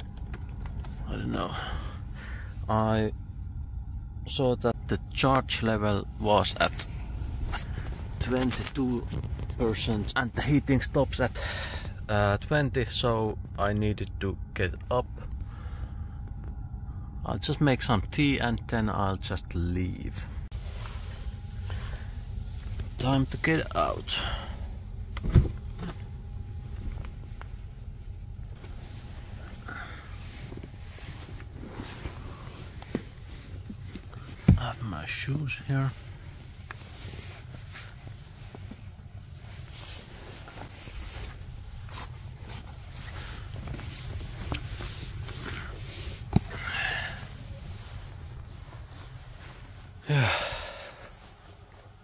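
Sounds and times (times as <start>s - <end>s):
rustling and shuffling: 0.0s - 1.7s, 5.5s - 12.5s, 19.9s - 52.0s
low steady hum: 0.0s - 52.0s.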